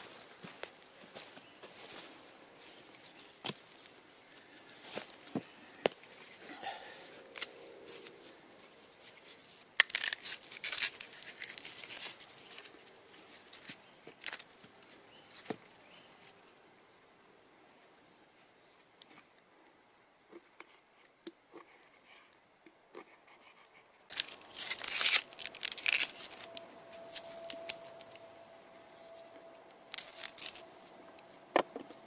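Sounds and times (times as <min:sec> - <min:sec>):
dry crackling and tearing: 0:04.6 - 0:16.4, 0:24.1 - 0:31.4.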